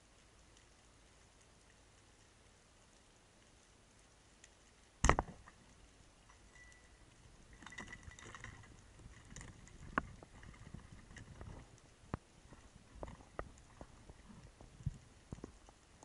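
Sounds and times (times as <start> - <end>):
faint clicks in water: 0.0 - 16.0
speargun firing underwater: 5.0 - 5.5
scraping in water: 7.5 - 15.7.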